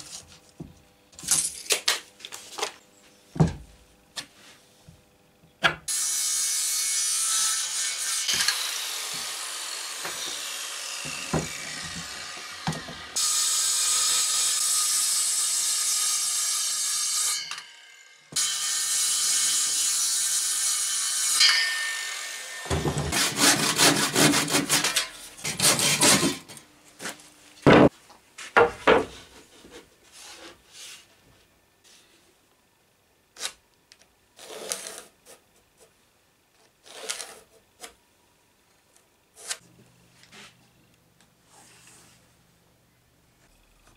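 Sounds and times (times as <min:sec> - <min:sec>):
saw cutting through wood: 0:05.9 - 0:17.7, 0:18.3 - 0:26.5.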